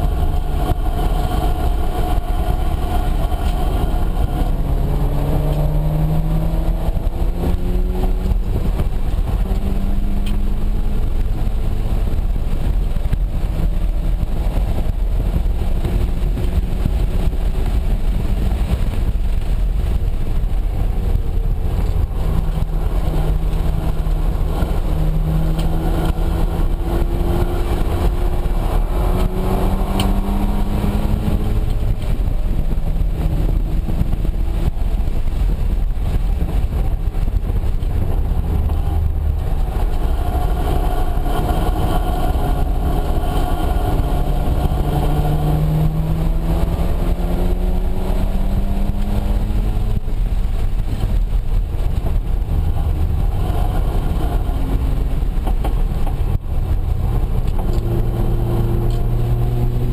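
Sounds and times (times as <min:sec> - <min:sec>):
rotary engine revving: 0:00.0 - 0:14.7, 0:20.9 - 0:35.4, 0:37.5 - 0:51.2
road and wind noise: 0:00.0 - 0:59.9.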